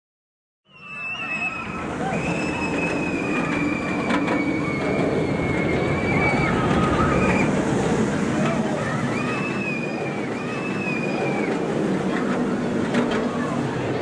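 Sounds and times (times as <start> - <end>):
high wheel squeal: 0.7 - 7.6
roller coaster rumbling on track: 0.8 - 14.0.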